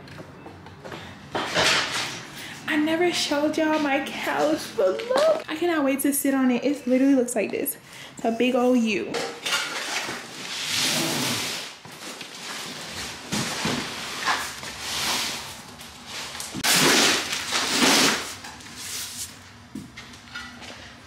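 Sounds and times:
cardboard boxes scraping on floor: 0:09.8 - 0:15.6.

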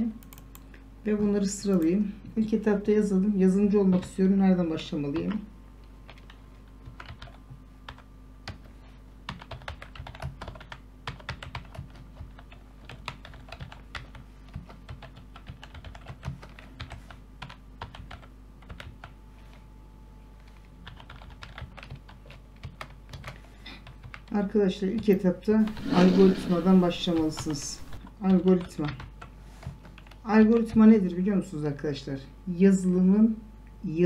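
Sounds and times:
faint steady hum: 0:00.0 - 0:34.0
computer keyboard typing: 0:00.2 - 0:00.7, 0:06.0 - 0:19.2, 0:20.4 - 0:24.4, 0:25.0 - 0:30.8.

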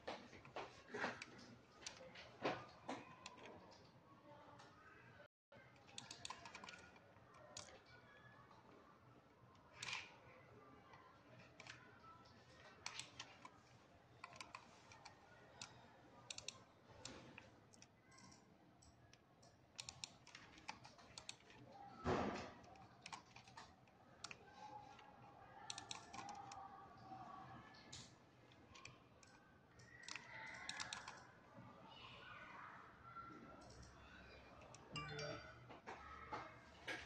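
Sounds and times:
keyboard and mouse clicks: 0:01.0 - 0:03.8, 0:05.7 - 0:08.0, 0:09.6 - 0:10.1, 0:11.4 - 0:11.9, 0:12.5 - 0:13.6, 0:14.2 - 0:21.7, 0:22.3 - 0:25.1, 0:25.7 - 0:26.6, 0:27.8 - 0:31.3, 0:34.6 - 0:35.5.

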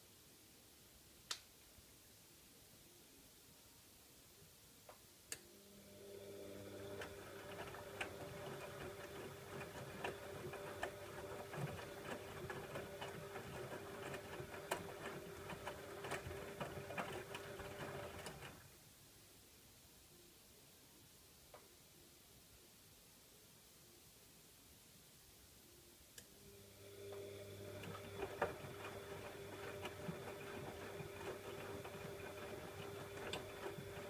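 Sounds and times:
washing machine motor humming: 0:05.6 - 0:18.7, 0:26.4 - 0:34.0
laundry tumbling and sloshing: 0:06.8 - 0:18.6, 0:27.6 - 0:34.0.

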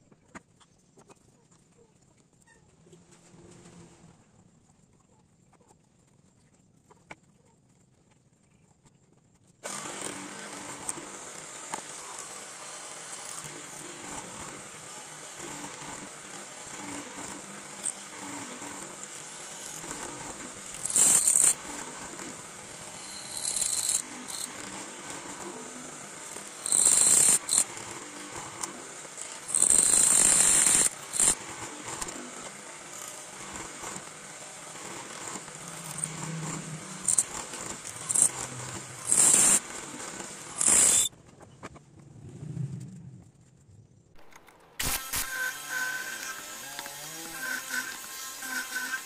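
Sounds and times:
drill bit cutting into wood: 0:09.6 - 0:25.0, 0:26.2 - 0:31.4, 0:32.0 - 0:41.1, 0:44.8 - 0:49.0
drill press whine: 0:09.6 - 0:41.1.

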